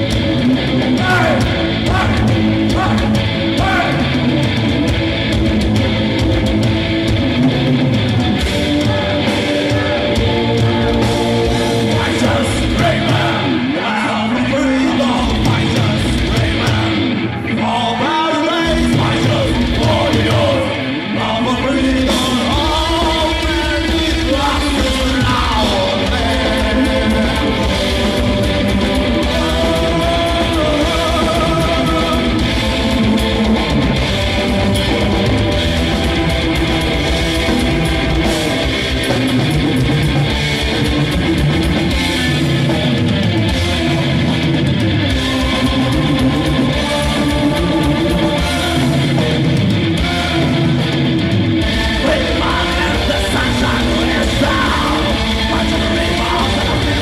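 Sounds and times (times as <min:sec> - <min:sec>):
heavy metal band playing: 0:00.0 - 0:57.0
person singing: 0:07.4 - 0:35.4, 0:45.1 - 0:51.0, 0:51.7 - 0:57.0.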